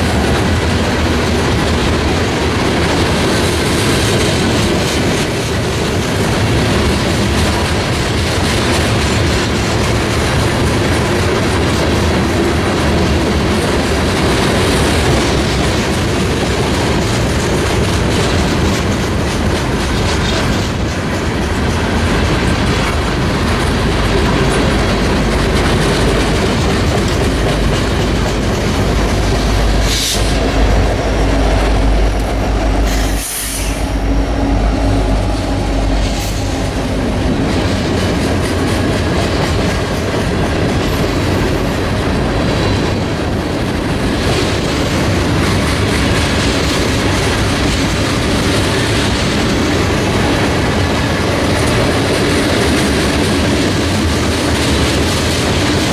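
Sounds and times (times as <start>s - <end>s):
diesel locomotive drone: 0.0s - 55.9s
train wheels clattering on rails: 0.0s - 55.9s.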